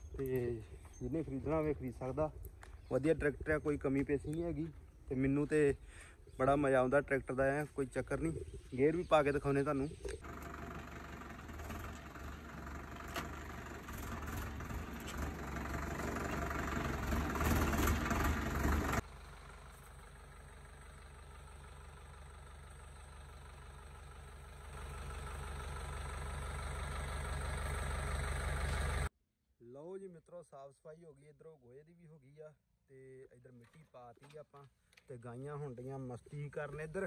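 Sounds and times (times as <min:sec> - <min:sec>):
tractor diesel engine running: 0:09.8 - 0:29.1.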